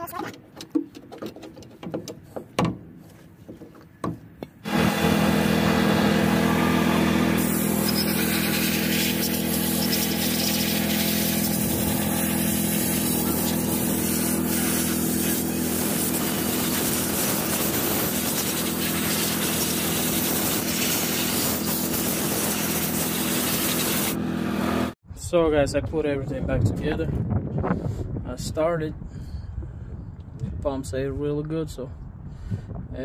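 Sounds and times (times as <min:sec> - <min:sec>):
engine humming steadily: 0:04.4 - 0:25.0.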